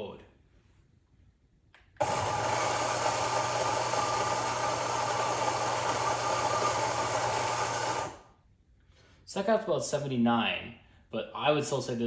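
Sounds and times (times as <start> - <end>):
electric coffee grinder grinding: 2.0 - 8.3.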